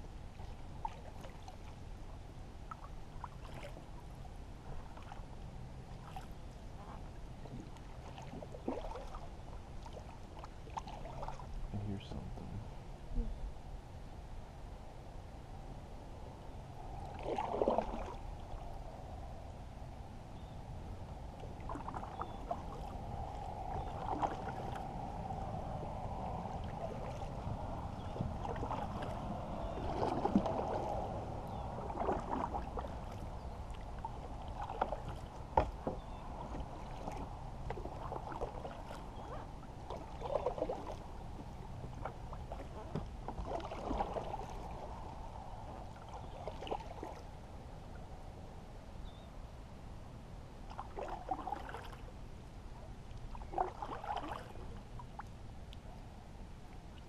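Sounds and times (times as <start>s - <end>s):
paddle splashing water: 0.0s - 11.7s, 17.0s - 18.6s, 21.0s - 47.4s, 50.6s - 55.8s.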